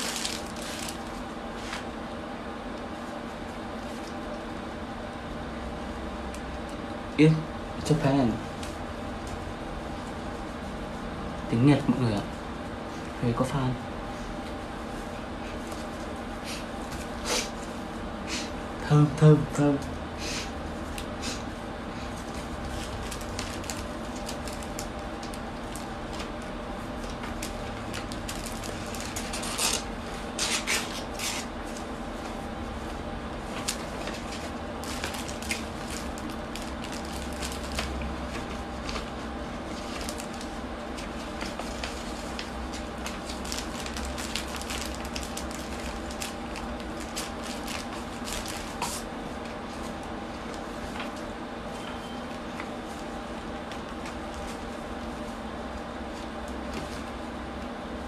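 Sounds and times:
paper and plastic bag rustling: 0.0 - 1.9, 22.2 - 32.3, 33.4 - 55.2.

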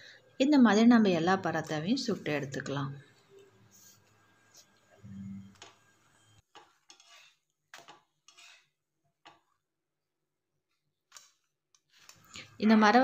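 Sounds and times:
spatula scraping on metal pan: 5.4 - 9.4.

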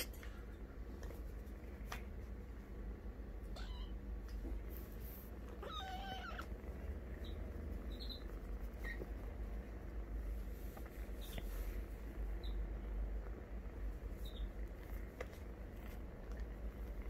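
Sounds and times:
kitten meowing: 3.5 - 4.0, 5.6 - 6.5
faint squeaks: 7.1 - 9.1.

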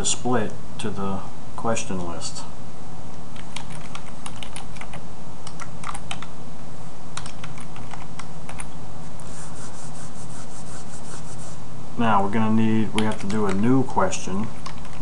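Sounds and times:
steady low hum: 0.0 - 15.0
soft rubbing noise: 9.0 - 11.6.

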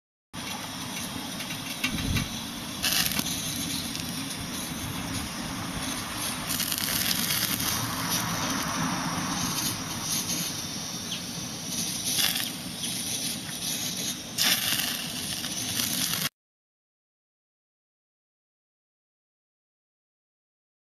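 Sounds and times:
gas stove burner: 0.4 - 16.3
skewers sizzling on grill: 0.4 - 16.3.

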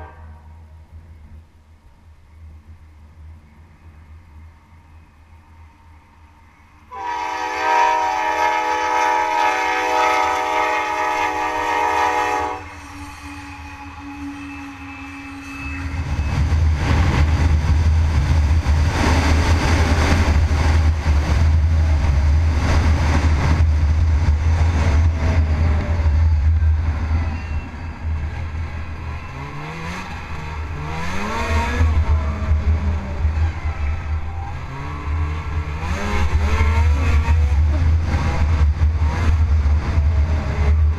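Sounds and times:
locomotive air horn: 0.0 - 0.7, 6.9 - 16.0
snowmobile engine: 29.4 - 33.2, 34.6 - 40.9.

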